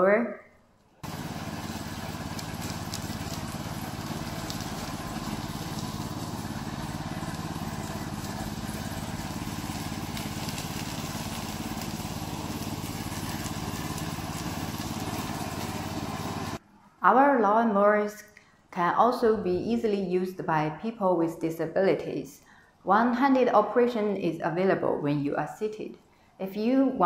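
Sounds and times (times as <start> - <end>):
petrol engine running steadily: 1.0 - 16.6.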